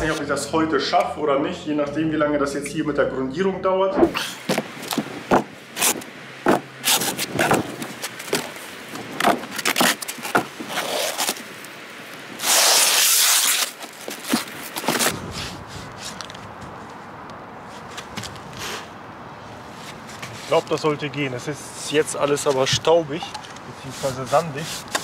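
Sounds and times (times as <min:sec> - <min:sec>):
hand scraping gritty brickwork: 0:04.0 - 0:11.5, 0:12.4 - 0:16.4, 0:22.2 - 0:25.0.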